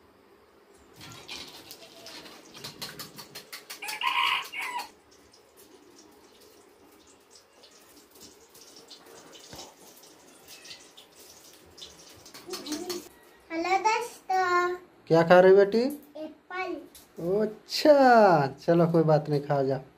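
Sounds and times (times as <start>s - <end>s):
chicken calling: 1.1s - 5.0s.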